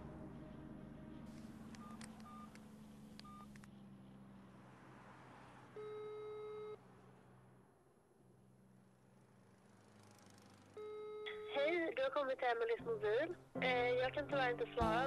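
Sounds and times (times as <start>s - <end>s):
phone keypad beeps: 1.8s - 2.6s, 3.2s - 3.5s.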